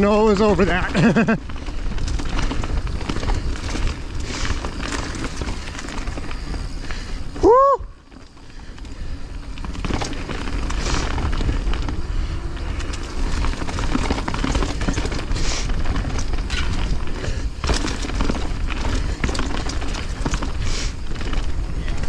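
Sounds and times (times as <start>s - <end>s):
bike rattling clicks and knocks: 0.0s - 22.0s
tyres rolling over dry leaves: 0.0s - 22.0s.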